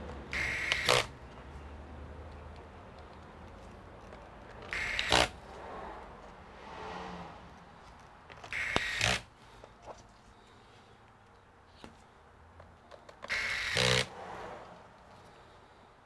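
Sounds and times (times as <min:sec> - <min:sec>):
electric screwdriver whirring: 0:00.3 - 0:01.1, 0:04.7 - 0:05.4, 0:08.5 - 0:09.3, 0:13.2 - 0:14.1.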